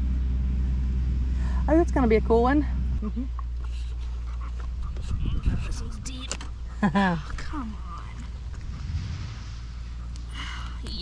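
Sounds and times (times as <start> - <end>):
wind rumbling on microphone: 4.7 - 11.0
wet mud squelching and scraping: 7.8 - 10.9.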